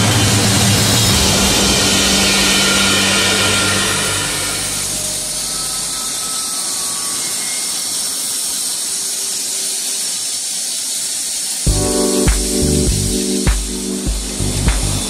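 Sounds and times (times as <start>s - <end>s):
music: 0.0s - 5.5s, 11.7s - 15.0s
coolant spray hissing: 8.3s - 15.0s.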